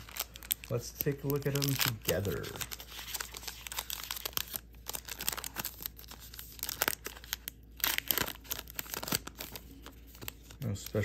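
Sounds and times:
foil wrapper tearing and crinkling: 0.0 - 11.0.

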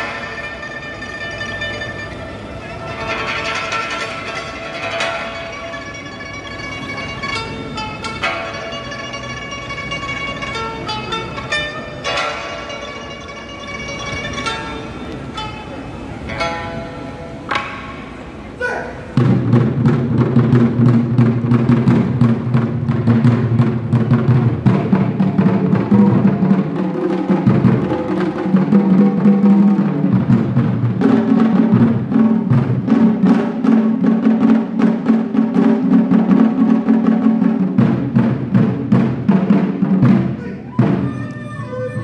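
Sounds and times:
pipa plucking: 0.0 - 18.6, 19.2 - 42.0
barrel drums drumming: 19.1 - 42.0.

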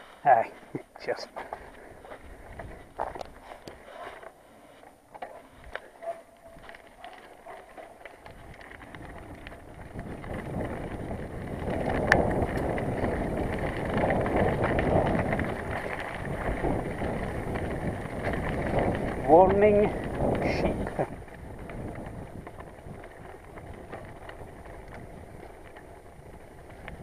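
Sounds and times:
bicycle tyre rumble and rattle: 0.0 - 27.0
wind on microphone: 8.2 - 27.0.

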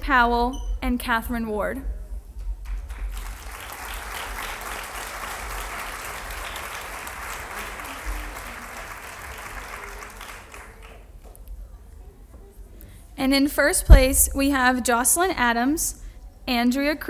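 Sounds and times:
audience applauding: 2.6 - 11.2.

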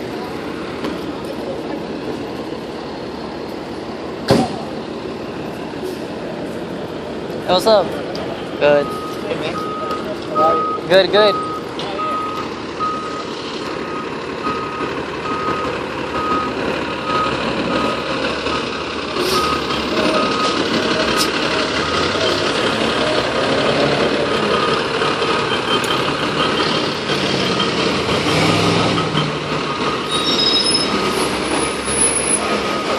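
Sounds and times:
diesel truck engine running: 0.0 - 32.9
reversing alarm beeps: 8.8 - 18.7, 19.3 - 20.6, 31.9 - 32.9.

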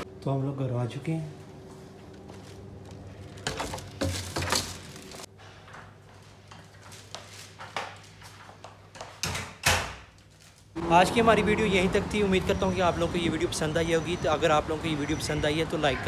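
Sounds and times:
footsteps: 1.4 - 9.2
plastic bag rustling: 2.1 - 5.3.

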